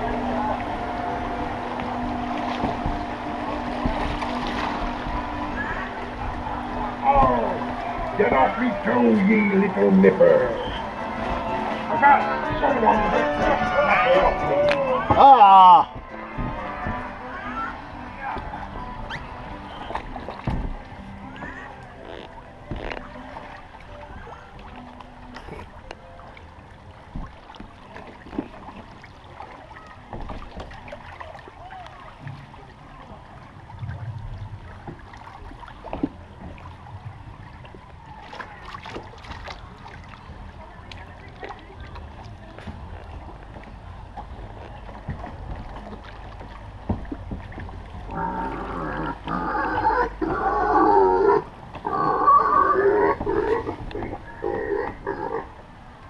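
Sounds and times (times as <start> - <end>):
water sloshing around boat: 0.0 - 56.0
recorded pig grunting: 48.1 - 55.5.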